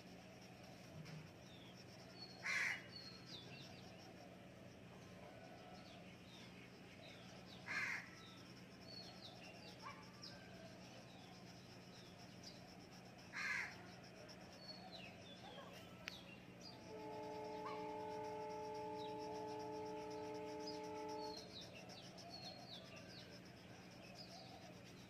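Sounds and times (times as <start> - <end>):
faint low hum: 0.0 - 25.0
crow cawing: 2.4 - 2.8, 7.7 - 8.1, 13.3 - 13.8.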